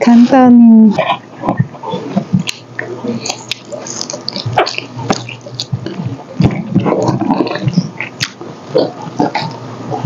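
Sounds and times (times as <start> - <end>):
wet chewing: 1.0 - 10.0
lip smacks: 1.4 - 9.6
small mouth clicks: 2.4 - 6.2.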